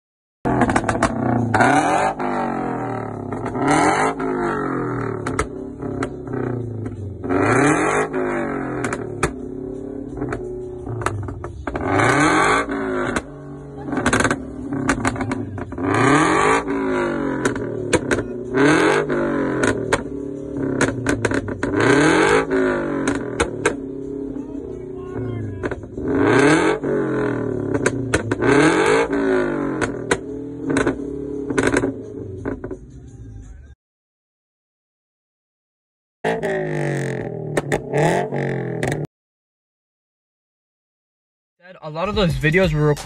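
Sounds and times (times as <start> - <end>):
exhaust pops and crackles: 0.5 - 4.3, 4.9 - 32.8, 36.4 - 39.1
car engine revving: 0.5 - 33.8, 36.2 - 39.1, 41.8 - 43.0.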